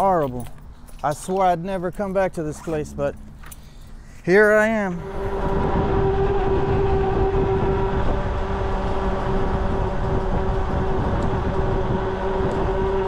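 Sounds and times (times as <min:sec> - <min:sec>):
road rumble: 0:00.0 - 0:13.0
electric motor whining: 0:05.0 - 0:13.0
wind buffeting microphone: 0:05.0 - 0:13.0.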